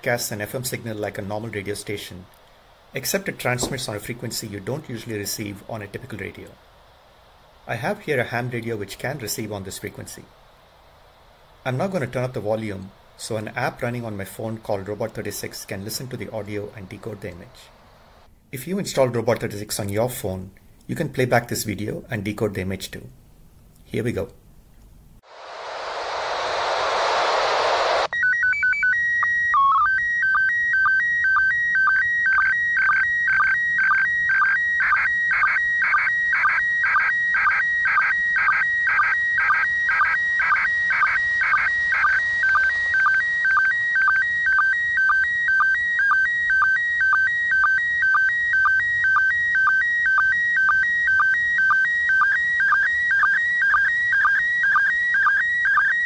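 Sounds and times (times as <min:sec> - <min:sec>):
radio hiss: 0:00.0 - 0:21.7, 0:25.2 - 0:28.1
warbling scan tones: 0:25.2 - 0:29.0, 0:37.9 - 0:50.8
steady calibration tone: 0:25.2 - 0:56.0.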